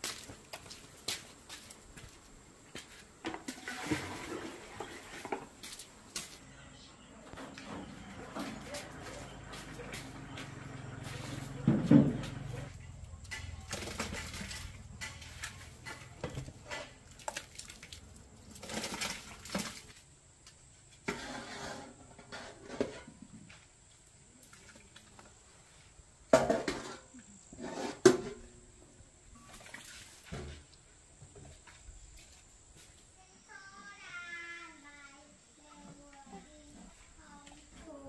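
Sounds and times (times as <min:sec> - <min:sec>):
liquid sloshing in plastic barrel: 0:03.3 - 0:05.8, 0:13.3 - 0:20.0, 0:29.4 - 0:30.8.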